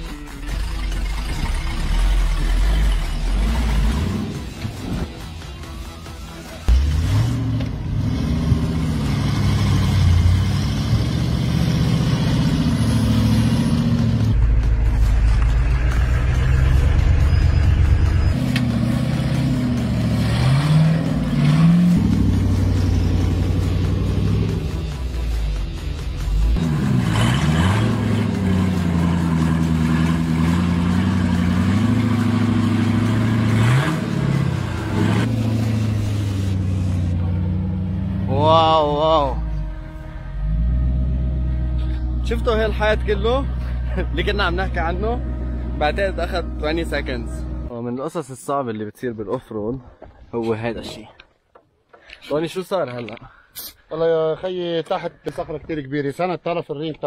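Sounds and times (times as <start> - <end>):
vehiclengine running under load: 6.6 - 47.7.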